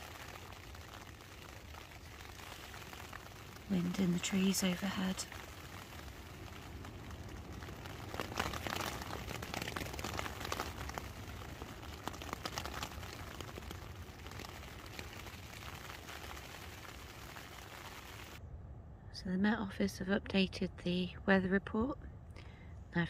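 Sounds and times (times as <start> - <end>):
rain tapping on a tent: 0.0 - 18.4
wind rushing in trees: 0.0 - 18.4.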